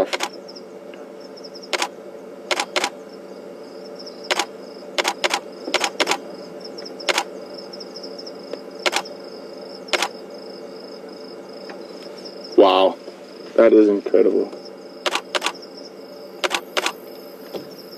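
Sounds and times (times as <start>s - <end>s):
camera shutter clicking: 0.1s - 0.3s, 2.5s - 2.9s, 4.3s - 6.2s, 7.1s - 7.3s, 8.9s - 9.1s, 9.9s - 10.1s, 15.1s - 15.6s, 16.4s - 17.0s.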